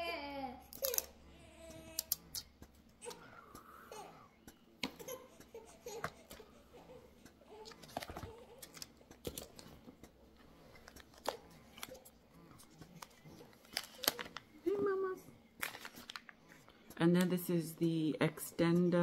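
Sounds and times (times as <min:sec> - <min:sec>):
baby babbling and giggling: 0:00.0 - 0:02.0, 0:05.0 - 0:07.6
packaging clicks and rustles: 0:07.6 - 0:09.8, 0:10.7 - 0:14.8, 0:15.6 - 0:16.7.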